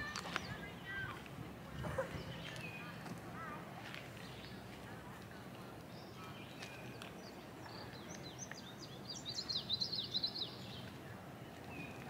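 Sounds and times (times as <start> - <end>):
songbird chirping: 0.0 - 12.0.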